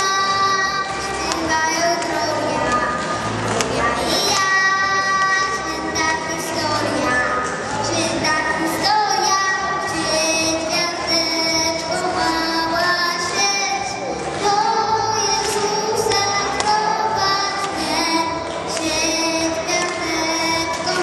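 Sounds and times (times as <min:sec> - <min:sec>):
girl singing into microphone: 0:00.0 - 0:21.0
musical accompaniment: 0:00.0 - 0:21.0.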